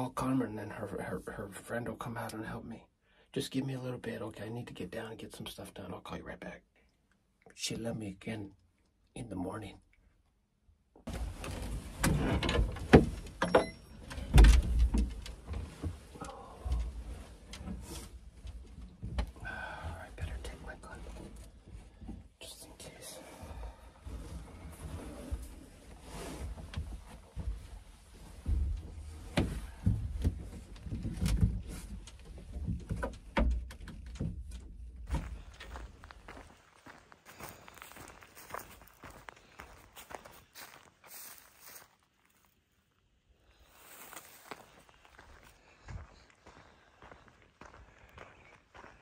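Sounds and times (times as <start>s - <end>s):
knocks and bumps in wooden hut: 11.0s - 22.4s, 23.3s - 41.4s
door pushed open: 11.1s - 15.2s.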